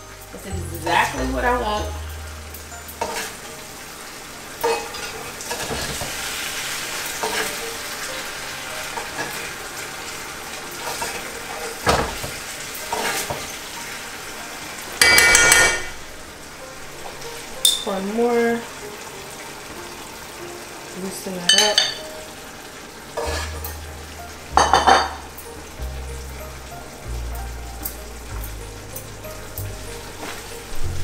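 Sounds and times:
fish sizzling in a skillet: 0.0s - 31.0s
spoon knocking against pan: 15.0s - 15.9s.

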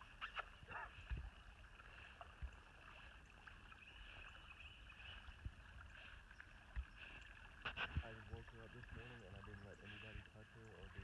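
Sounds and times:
dog swimming in water: 0.0s - 11.0s.

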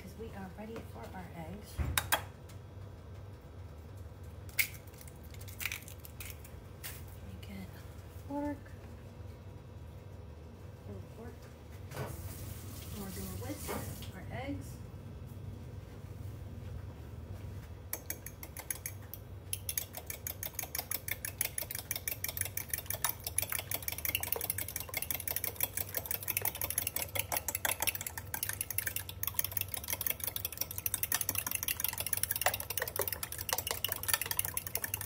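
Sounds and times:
fork whisking eggs in glass: 18.0s - 35.0s.

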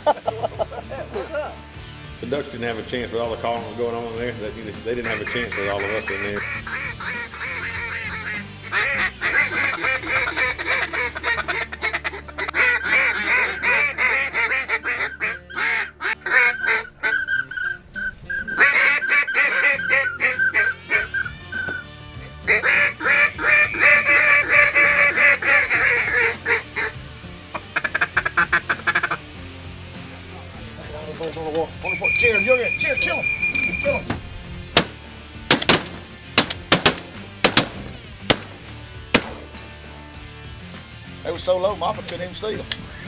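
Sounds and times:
duck calls quacking: 5.0s - 29.4s, 31.8s - 34.1s.

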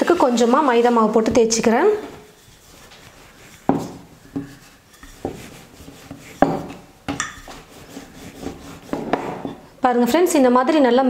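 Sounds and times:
rolling pin rolling dough: 0.0s - 9.8s
rolling pin knocking on board: 3.7s - 4.6s, 5.2s - 7.6s.

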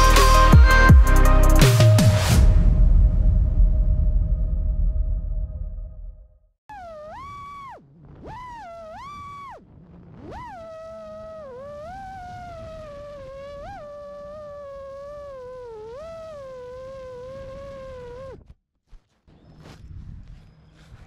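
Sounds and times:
drone motors whining: 6.7s - 18.6s.

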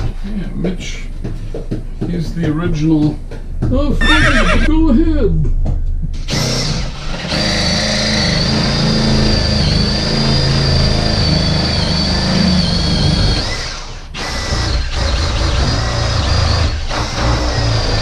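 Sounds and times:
power drill boring: 6.3s - 18.0s.

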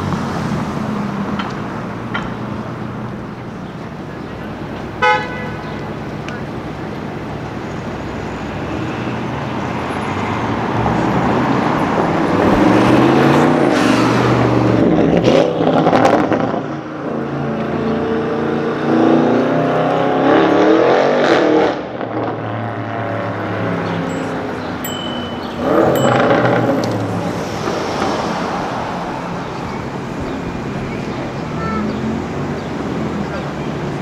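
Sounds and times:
car accelerating past: 10.0s - 24.8s, 25.4s - 30.7s.

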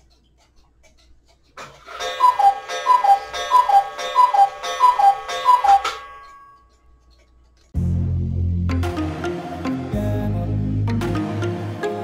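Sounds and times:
cuckoo clock calling: 1.8s - 7.3s.

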